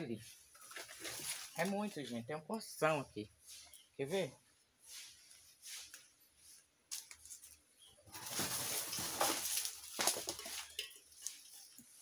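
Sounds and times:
vine leaves rustling and scraping: 0.1s - 2.3s, 4.8s - 12.0s.

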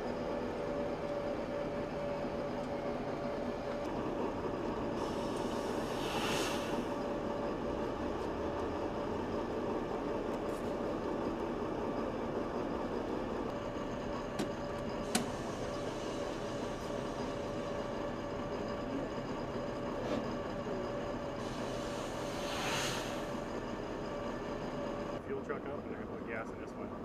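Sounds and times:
machinery drone: 0.0s - 27.0s
brief hiss: 5.8s - 6.8s, 21.6s - 23.3s.

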